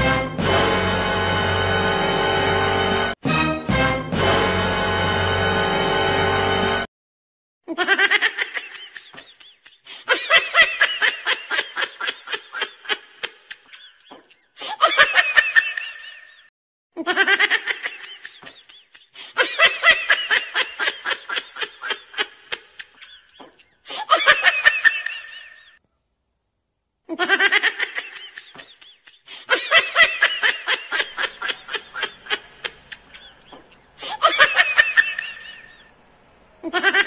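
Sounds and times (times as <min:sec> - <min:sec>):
person laughing: 0:07.7 - 0:25.8, 0:27.1 - 0:35.9, 0:36.6 - 0:37.0.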